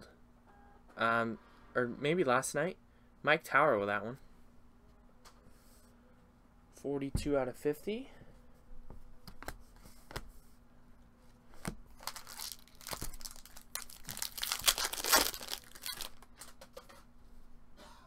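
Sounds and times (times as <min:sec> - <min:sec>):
foil wrapper crinkling and tearing: 0:11.9 - 0:16.6.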